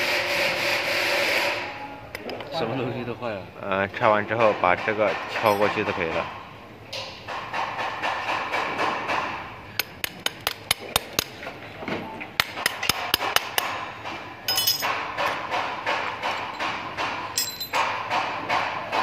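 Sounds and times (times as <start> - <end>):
hammer tapping metal: 5.4 - 6.3, 12.4 - 19.0
high metallic rings: 14.5 - 15.0, 17.3 - 17.9.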